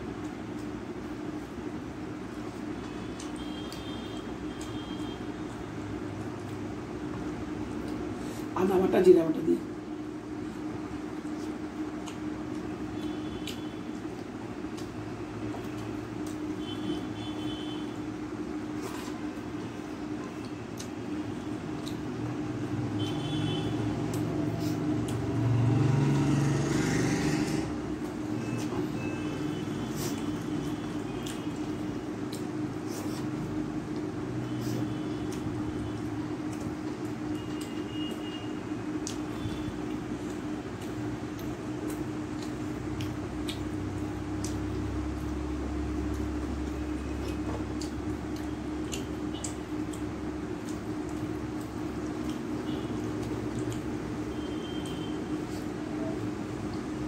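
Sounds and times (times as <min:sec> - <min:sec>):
steady hum: 0:00.0 - 0:57.0
chewing: 0:10.6 - 0:16.6, 0:18.6 - 0:22.4, 0:23.8 - 0:25.9, 0:28.0 - 0:38.3, 0:38.9 - 0:55.8
vehicle engine passing: 0:23.6 - 0:28.0.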